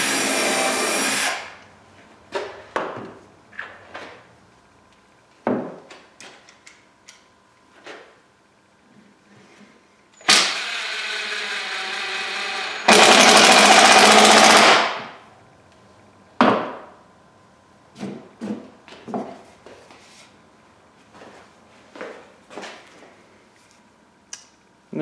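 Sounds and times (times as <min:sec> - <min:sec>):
impact driver hammering: 0:12.8 - 0:15.1.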